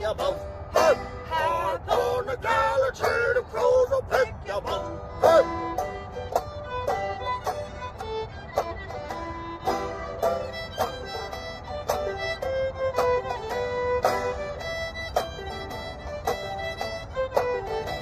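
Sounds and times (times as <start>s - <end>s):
banjo picking: 0.0s - 18.0s
fiddle bowed notes: 0.0s - 18.0s.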